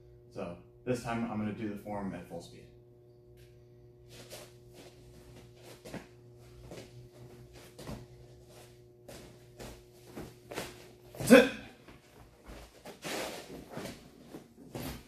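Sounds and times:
low room hum: 0:00.0 - 0:15.0
feet landing on padded mat: 0:05.2 - 0:15.0.

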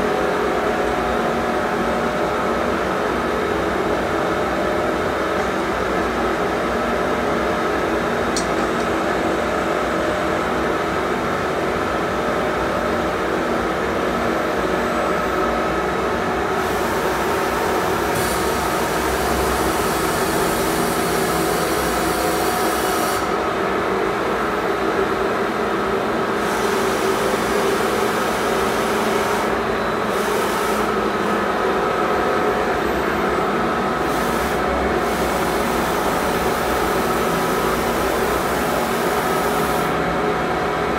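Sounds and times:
machinery humming: 0:00.0 - 0:40.9
hiss: 0:18.1 - 0:23.4, 0:30.1 - 0:31.0.

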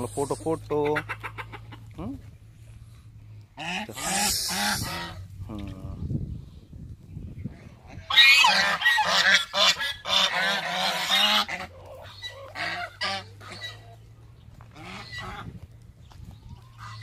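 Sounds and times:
geese honking: 0:00.0 - 0:01.9, 0:03.6 - 0:05.3, 0:07.5 - 0:15.8, 0:16.5 - 0:17.0.

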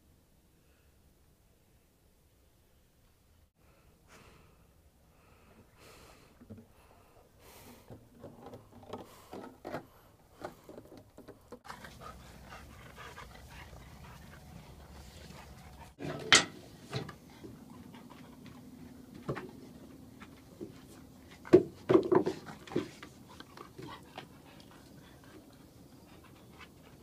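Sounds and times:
dog panting: 0:11.6 - 0:16.0, 0:17.0 - 0:27.0.

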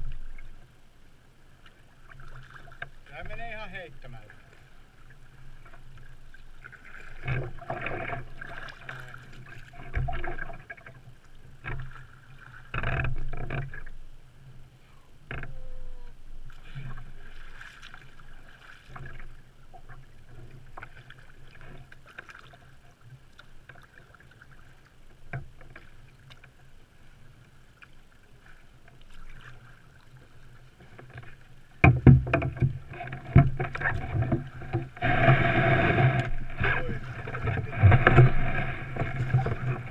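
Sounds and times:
paddle splashes: 0:00.0 - 0:14.0, 0:14.6 - 0:39.9
water lapping at hull: 0:00.0 - 0:39.9
kayak knocking ashore: 0:01.6 - 0:14.0, 0:27.3 - 0:39.9.

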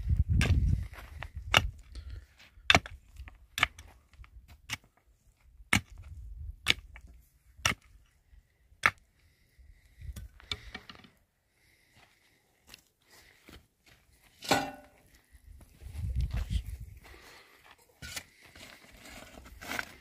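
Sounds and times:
pickaxe striking stony soil: 0:00.3 - 0:00.7, 0:01.4 - 0:01.8, 0:02.6 - 0:03.9, 0:05.7 - 0:08.0, 0:08.8 - 0:09.0, 0:14.4 - 0:15.0.

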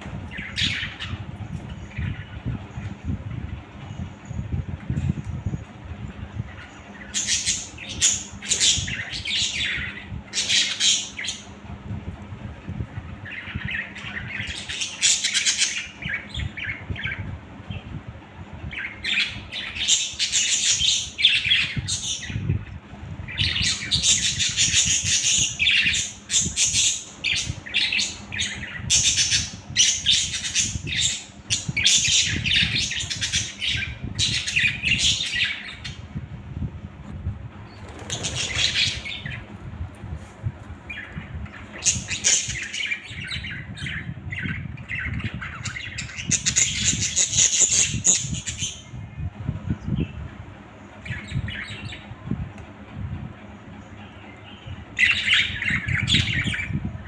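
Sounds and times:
budgerigars chirping and chattering: 0:00.3 - 0:02.9, 0:06.4 - 0:11.5, 0:13.2 - 0:17.8, 0:18.7 - 0:22.6, 0:23.3 - 0:36.0, 0:37.8 - 0:39.5, 0:40.9 - 0:49.0, 0:51.0 - 0:52.1, 0:54.1 - 0:56.8.

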